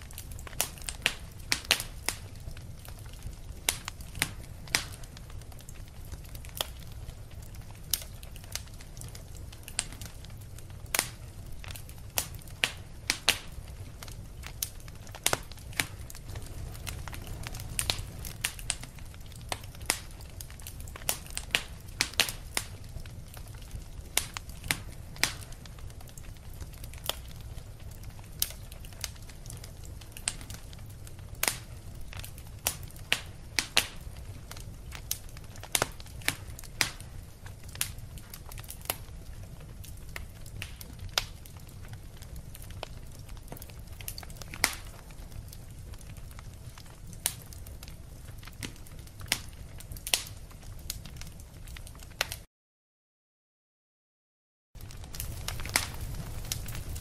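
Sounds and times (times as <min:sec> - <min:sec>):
wood fire crackling: 0:00.0 - 0:52.5, 0:54.8 - 0:57.0.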